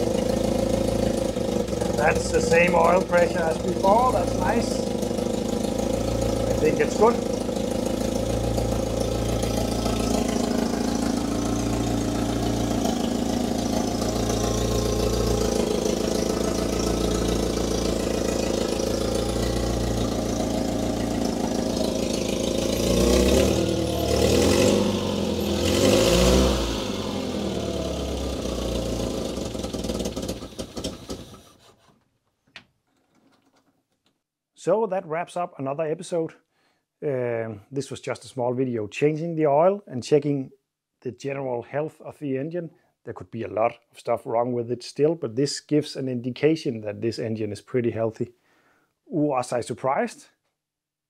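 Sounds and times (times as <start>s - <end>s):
petrol engine idling and revving: 0.0s - 31.7s.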